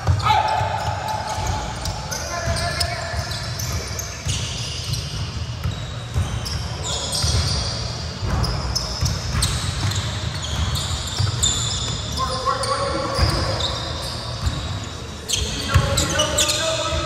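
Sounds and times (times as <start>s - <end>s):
basketball bouncing: 0.0s - 12.1s, 14.4s - 14.8s
sneaker squeaks: 0.0s - 17.0s.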